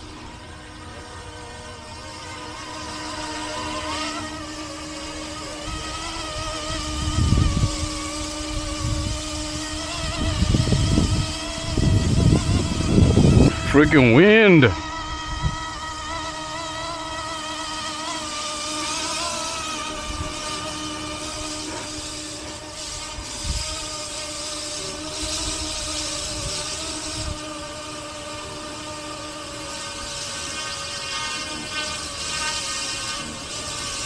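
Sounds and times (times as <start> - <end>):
rc helicopter motor whining: 0.0 - 34.0
wind buffeting microphone: 5.6 - 14.0, 14.8 - 16.2.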